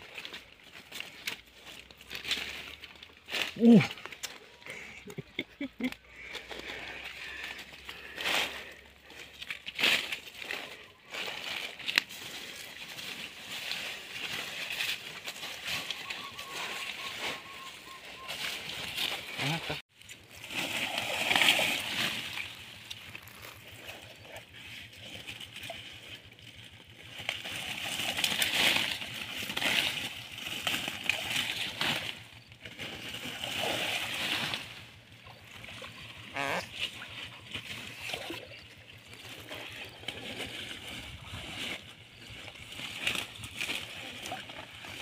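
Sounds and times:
shallow water splashing: 0:20.2 - 0:26.2.

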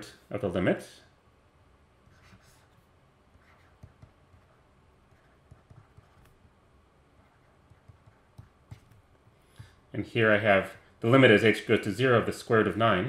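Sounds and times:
stylus tapping on tablet screen: 0:03.4 - 0:06.4, 0:07.6 - 0:09.8.

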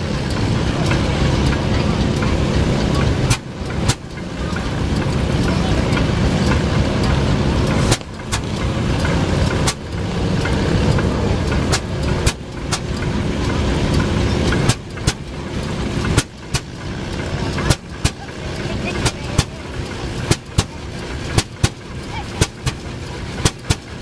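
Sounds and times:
sharp exhaust crack: 0:00.0 - 0:24.0
tractor engine running: 0:00.0 - 0:24.0.

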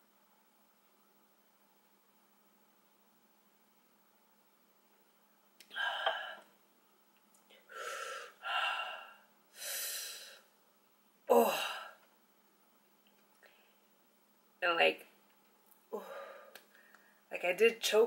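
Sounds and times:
woman sighing: 0:05.7 - 0:06.4, 0:11.3 - 0:12.0, 0:15.9 - 0:16.6
woman huffing heavy breaths: 0:05.7 - 0:06.5, 0:07.7 - 0:10.4.

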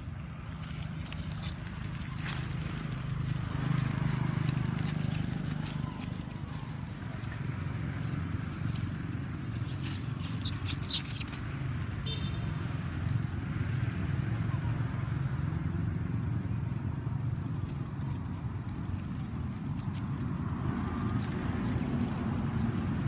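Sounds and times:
vehicle engine rumbling: 0:00.0 - 0:23.0.

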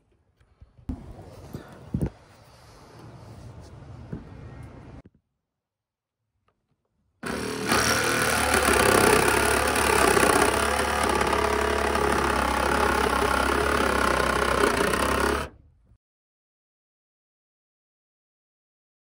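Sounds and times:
reciprocating saw cutting sheet metal: 0:07.2 - 0:15.5.

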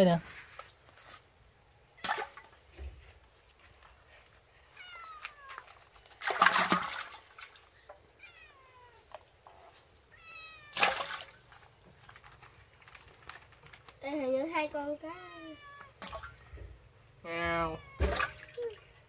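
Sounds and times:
fish splashing in a basket: 0:02.0 - 0:02.8, 0:05.6 - 0:07.8, 0:10.7 - 0:13.9, 0:18.0 - 0:18.7
cat meowing: 0:04.8 - 0:05.6, 0:08.2 - 0:09.1, 0:10.1 - 0:10.8, 0:15.2 - 0:16.0, 0:17.5 - 0:18.6.

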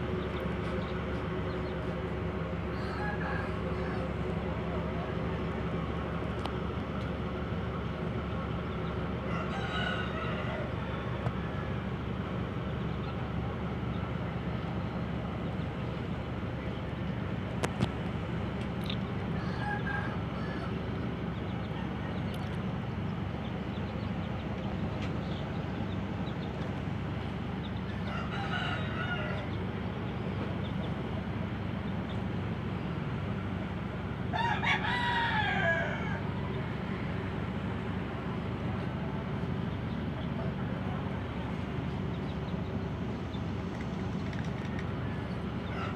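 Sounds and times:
ship engines droning: 0:00.0 - 0:45.9
arching crow-like call: 0:09.2 - 0:11.9, 0:19.3 - 0:20.8, 0:27.9 - 0:29.5, 0:34.3 - 0:36.4.

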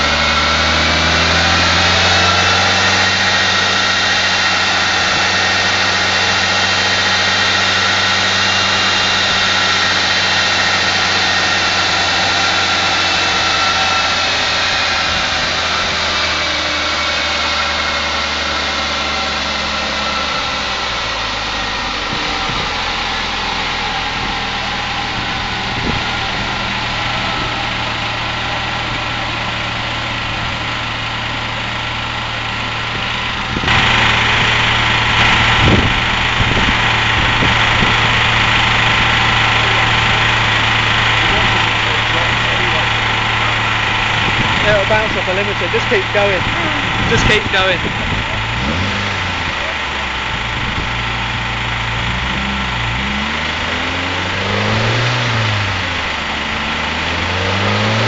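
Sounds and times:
car engine running: 0:00.0 - 0:58.0
high whine: 0:00.0 - 0:58.0.

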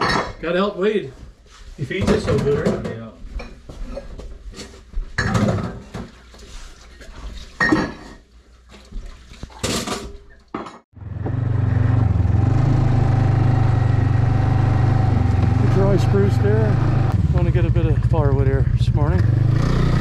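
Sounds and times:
dishes clinking and clattering: 0:00.0 - 0:00.4, 0:05.2 - 0:06.2, 0:07.5 - 0:08.2
snowmobile engine running: 0:11.3 - 0:20.0.

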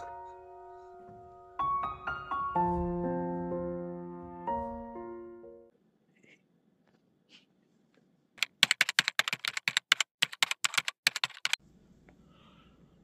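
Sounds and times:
rapid keyboard typing: 0:08.4 - 0:11.6.

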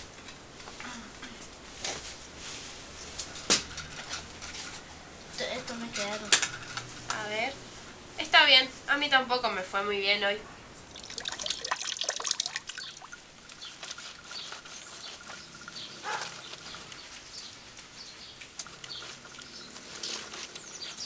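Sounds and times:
water dripping from tap: 0:10.9 - 0:13.3.

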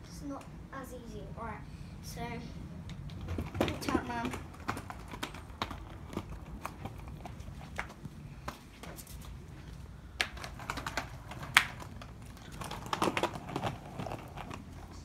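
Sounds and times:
skateboard wheels rolling on paving: 0:02.2 - 0:15.0
skateboard clacks: 0:02.9 - 0:09.3, 0:10.2 - 0:15.0.

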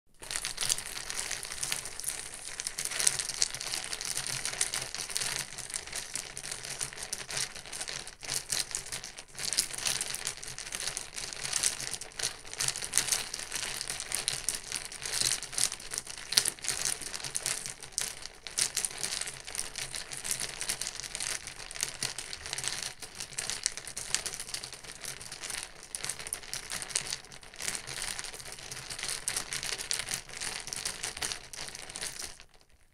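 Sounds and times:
ice cubes rattling in cup: 0:00.2 - 0:22.6.

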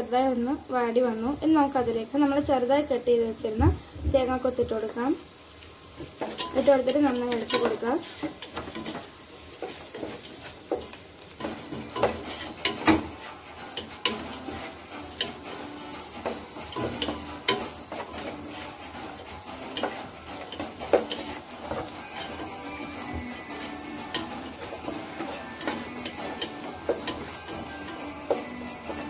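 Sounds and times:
onions sizzling: 0:00.0 - 0:29.0
spatula scraping a pot: 0:06.1 - 0:29.0.

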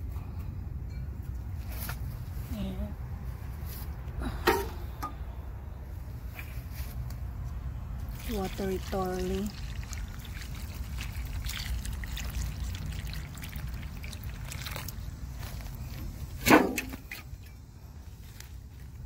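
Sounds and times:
water pouring onto soil: 0:08.0 - 0:16.0.

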